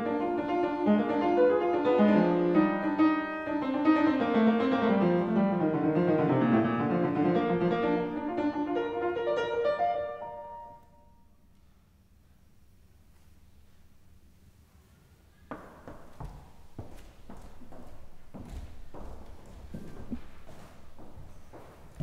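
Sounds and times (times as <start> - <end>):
upright piano playing: 0.0 - 11.1.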